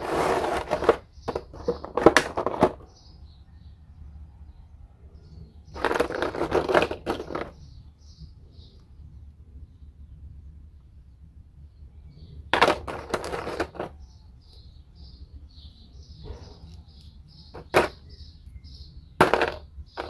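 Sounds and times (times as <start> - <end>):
plastic parts clicking and crinkling: 0.3 - 2.8, 5.8 - 7.6, 12.5 - 14.0, 17.5 - 18.0, 19.2 - 20.0.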